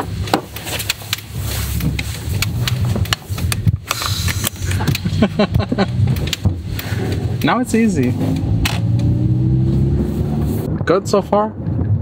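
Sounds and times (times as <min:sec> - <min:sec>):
car engine at low revs: 0:00.0 - 0:10.7
people laughing: 0:04.6 - 0:06.4
voices: 0:07.4 - 0:08.2.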